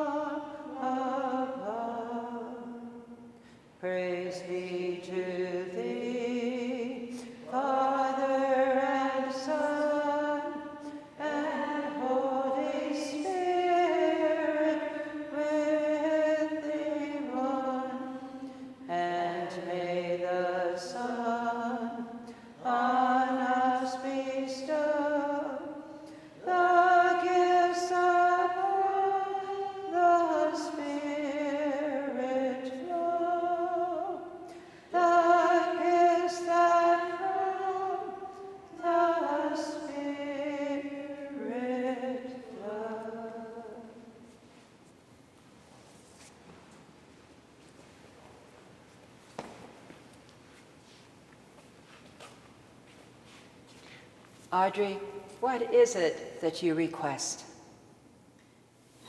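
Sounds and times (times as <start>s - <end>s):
women singing a hymn unaccompanied: 0.0s - 44.3s.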